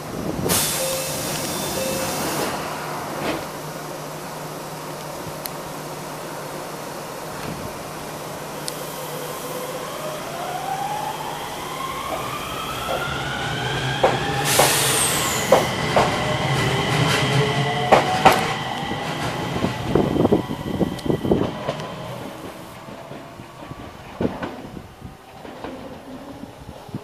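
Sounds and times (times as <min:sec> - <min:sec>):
electric train motors whining: 0:00.1 - 0:25.8
train wheels clacking on rail joints: 0:12.1 - 0:26.9.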